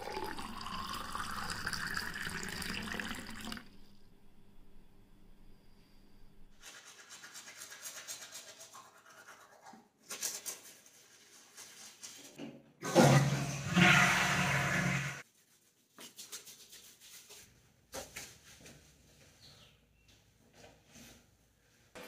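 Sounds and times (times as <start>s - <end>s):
water poured into a glass: 0.0s - 3.7s
toothbrush scrubbing teeth: 6.6s - 12.2s.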